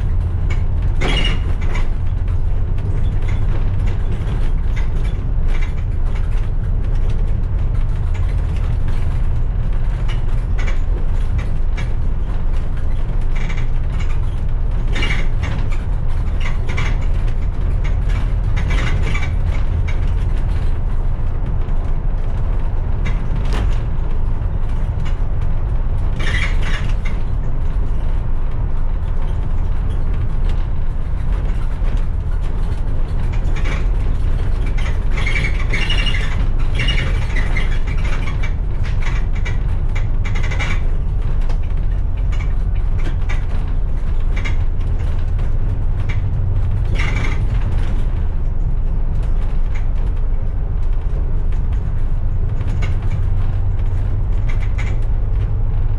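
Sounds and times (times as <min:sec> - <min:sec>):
bus body rattling and creaking: 0:00.0 - 0:55.9
bus engine and road noise: 0:00.0 - 0:55.9.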